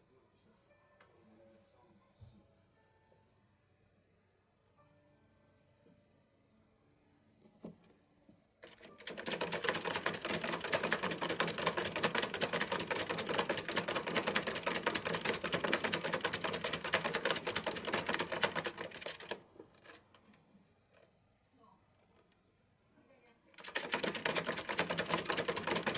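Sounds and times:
exercise wheel rapid clatter: 8.6s - 20.1s, 23.6s - 25.9s.

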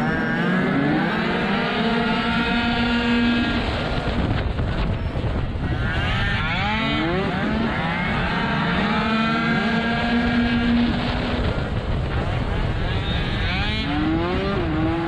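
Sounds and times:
other scooter engines: 0.0s - 15.0s
scooter engine revving: 0.0s - 15.0s.

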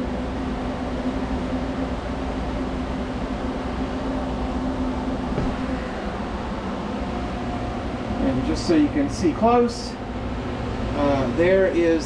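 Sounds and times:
lathe motor hum and whir: 0.0s - 12.0s.

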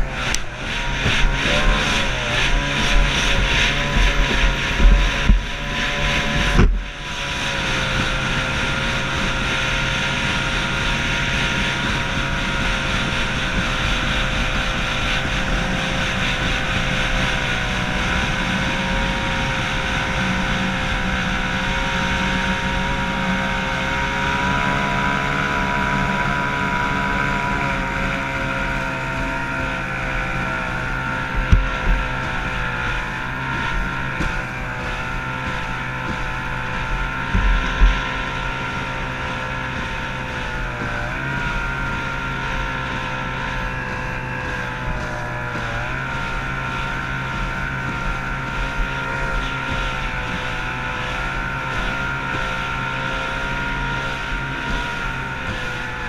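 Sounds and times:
outboard racing engine: 0.0s - 56.0s
wind on microphone: 0.0s - 56.0s
sharp thumps: 31.2s - 41.0s.

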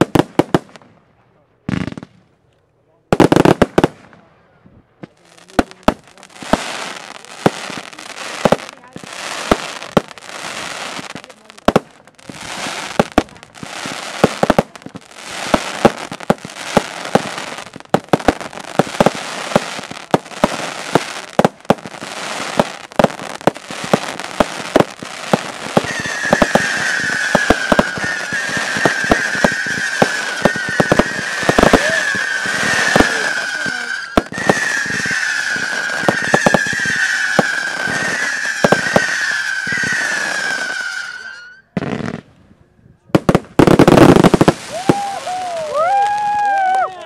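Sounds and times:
fireworks bangs: 0.0s - 1.0s, 3.1s - 42.3s, 43.1s - 47.0s
fireworks crackling: 0.0s - 1.0s, 3.1s - 4.2s, 5.0s - 42.3s, 43.1s - 47.0s
fireworks hiss: 5.3s - 42.2s, 43.3s - 46.2s
high whistle: 25.8s - 41.7s.

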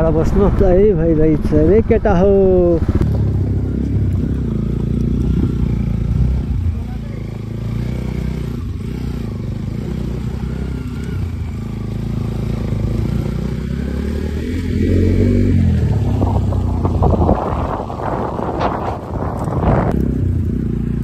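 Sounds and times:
wind buffeting microphone: 0.0s - 6.8s, 12.5s - 20.7s
motorcycle engine running: 2.4s - 21.0s.

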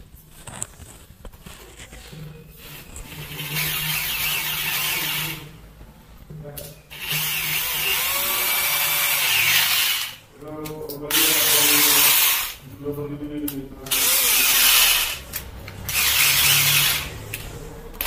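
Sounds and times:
rotary hammer drill running: 2.6s - 5.4s, 6.9s - 10.2s, 11.1s - 12.6s, 13.9s - 17.2s.

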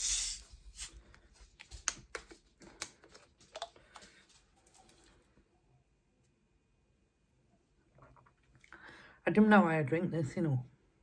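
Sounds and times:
plastic bottle cap clicks and crackles: 1.6s - 4.1s.

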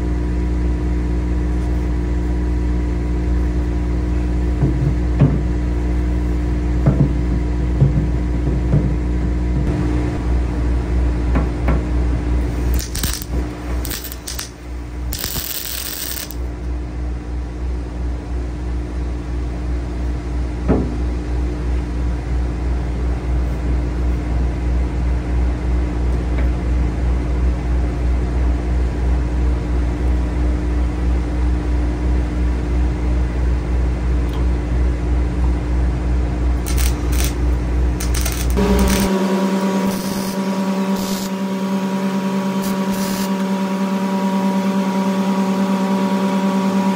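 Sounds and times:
engine running: 9.3s - 16.7s, 34.6s - 46.9s.

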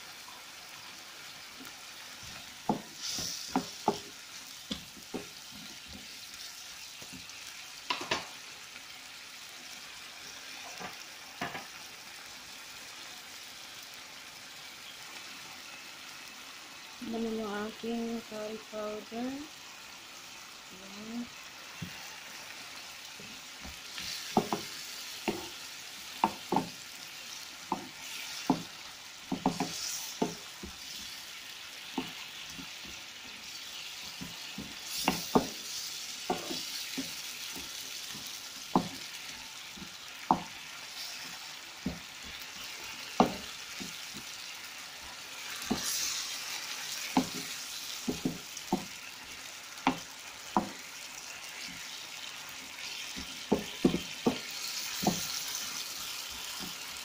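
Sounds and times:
food sizzling in a frying pan: 0.0s - 57.0s
wooden spatula knocking on pan: 2.7s - 2.9s, 3.5s - 4.1s, 4.7s - 6.1s, 7.9s - 8.3s, 10.8s - 11.7s, 23.6s - 25.6s, 26.2s - 26.8s, 27.7s - 28.7s, 29.3s - 30.8s, 34.1s - 35.6s, 36.3s - 39.1s, 39.7s - 40.6s, 41.8s - 42.4s, 43.1s - 44.4s, 45.6s - 45.9s, 47.1s - 49.0s, 49.8s - 50.8s, 53.1s - 55.3s.

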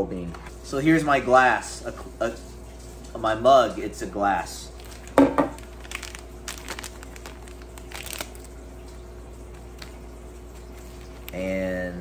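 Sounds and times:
faint steady hum: 0.0s - 12.0s
paper packet crinkling and tearing: 4.7s - 9.0s, 9.6s - 11.6s.

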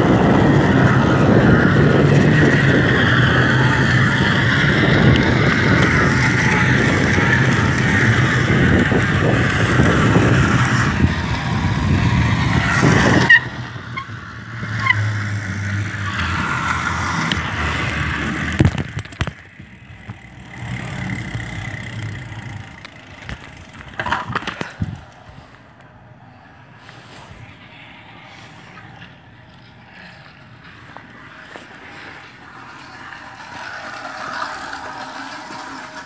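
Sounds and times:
wind on microphone: 0.0s - 19.3s, 23.4s - 25.6s
can rubbing against bike tyre: 0.1s - 19.4s, 31.0s - 36.0s.

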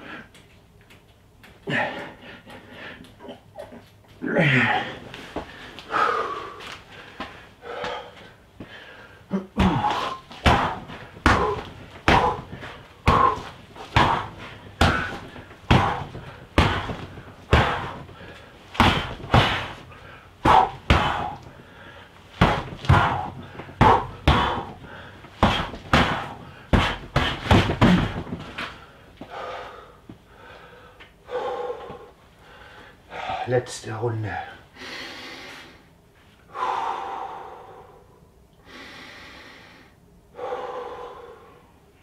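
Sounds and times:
punches thudding on training dummy: 9.6s - 21.6s, 22.3s - 28.8s.

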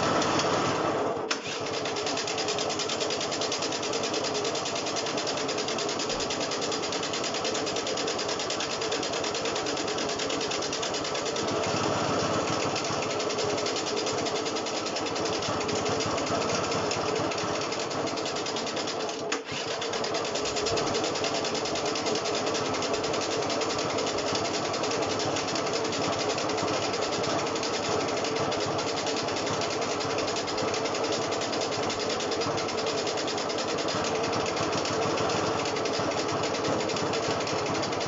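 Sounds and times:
scooter starter motor cranking: 1.3s - 22.3s.

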